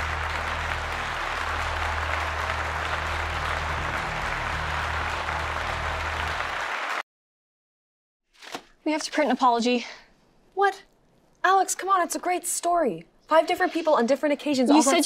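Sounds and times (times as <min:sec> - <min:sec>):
low hum: 0:00.0 - 0:06.4
audience applauding: 0:00.0 - 0:07.0.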